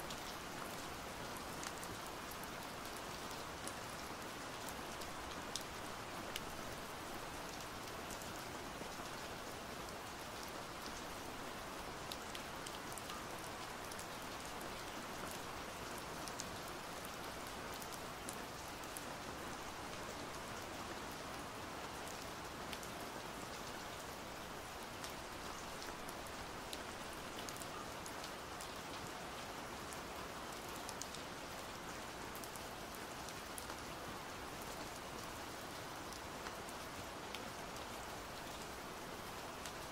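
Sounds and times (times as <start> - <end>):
pouring rain: 0.0 - 39.9.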